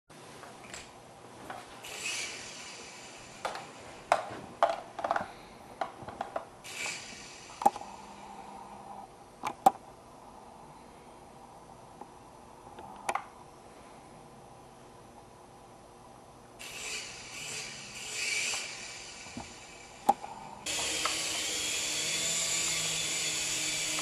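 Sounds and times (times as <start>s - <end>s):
faint motor hum: 0.2s - 24.0s
toy helicopter clicks and taps: 16.6s - 24.0s.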